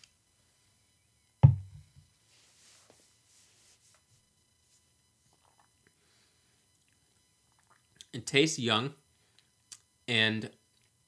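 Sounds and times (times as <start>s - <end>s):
light glass tap: 1.4s - 1.8s
glass thump on wooden table: 1.4s - 2.0s.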